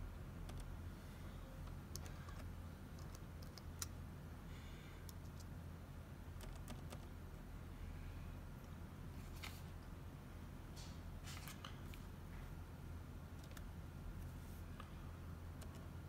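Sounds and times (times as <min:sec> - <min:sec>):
low steady hum: 0:00.0 - 0:16.0
laptop keyboard keystrokes: 0:00.4 - 0:00.7, 0:01.9 - 0:04.0, 0:06.3 - 0:07.1, 0:13.4 - 0:13.7, 0:15.6 - 0:15.9.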